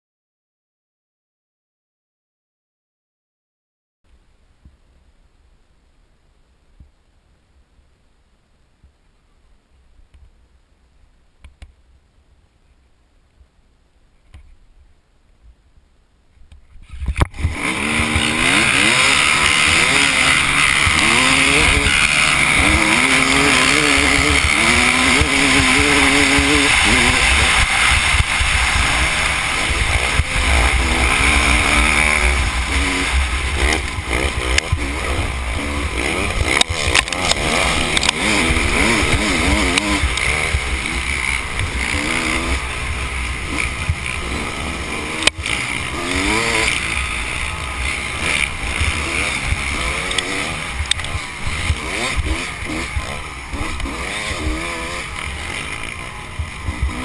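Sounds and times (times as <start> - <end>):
dirt bike engine revving: 16.8 - 57.0.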